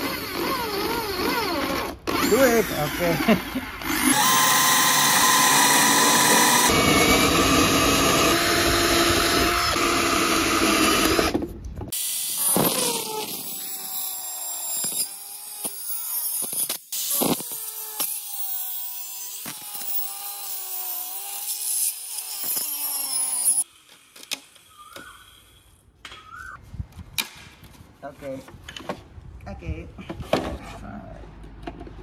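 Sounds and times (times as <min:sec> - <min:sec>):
cordless drill boring into wood: 0:00.0 - 0:11.4, 0:12.0 - 0:23.6
angle grinder cutting wood: 0:00.0 - 0:25.6.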